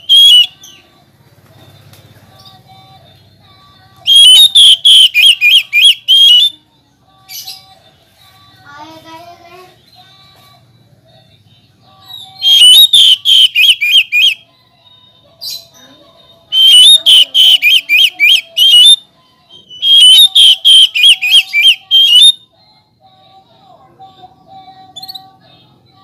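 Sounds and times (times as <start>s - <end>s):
bird whistling song: 0.0s - 0.8s, 4.0s - 6.6s, 12.1s - 14.4s, 16.5s - 22.5s.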